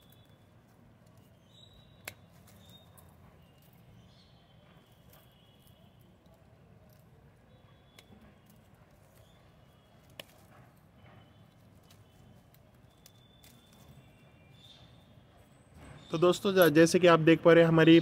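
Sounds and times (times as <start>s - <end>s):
pruning shears snipping stems: 1.9s - 3.9s.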